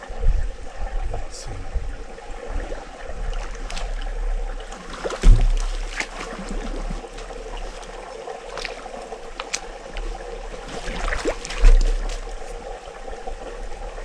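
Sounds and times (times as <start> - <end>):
small waves lapping: 2.0 - 14.0
dull low thump: 3.2 - 12.7.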